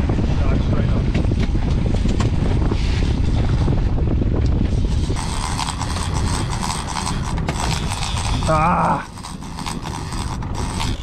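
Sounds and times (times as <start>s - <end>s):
wind buffeting microphone: 0.0s - 11.0s
outboard motor running: 1.6s - 11.0s
fishing reel drag clicking: 4.9s - 11.0s.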